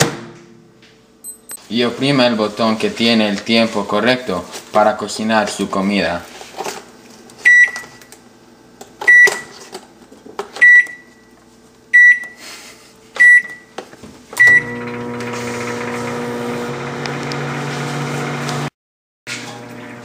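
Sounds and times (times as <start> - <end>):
microwave oven humming: 7.0 - 18.7, 19.3 - 20.0
microwave keypad beeping: 7.5 - 8.1, 9.1 - 9.6, 10.6 - 11.3, 11.9 - 12.4, 13.2 - 13.8, 14.4 - 14.8.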